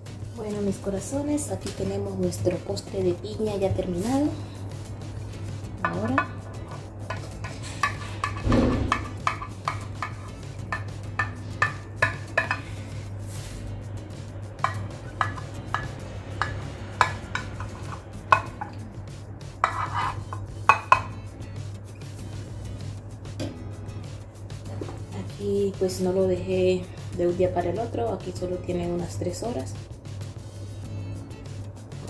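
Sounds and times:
steady low hum: 0.0s - 20.6s.

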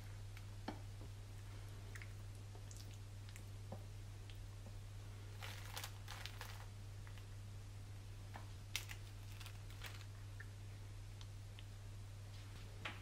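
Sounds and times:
low steady hum: 0.0s - 13.0s
soft crinkling and scraping: 5.3s - 7.3s, 8.4s - 10.2s.

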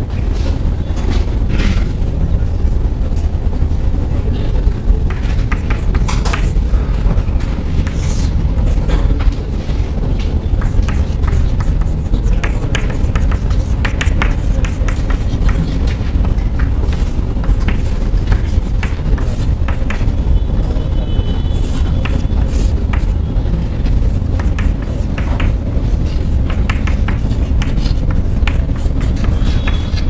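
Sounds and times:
loud steady low rumble: 0.0s - 30.0s
chalk scratching on blackboard: 5.1s - 6.6s, 7.7s - 9.0s, 10.4s - 23.3s, 24.0s - 30.0s.

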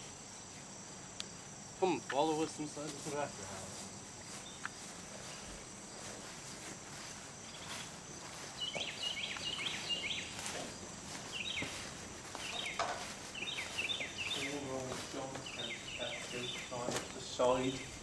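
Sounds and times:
crickets and insects chorus: 0.0s - 18.0s
bird chirping: 7.4s - 18.0s.

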